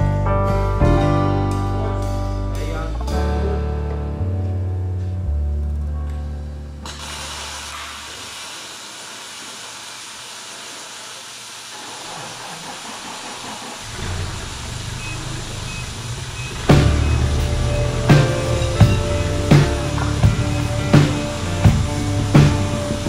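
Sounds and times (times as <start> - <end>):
welding arc hissing: 6.8 - 23.0
background music with drums: 16.6 - 23.0.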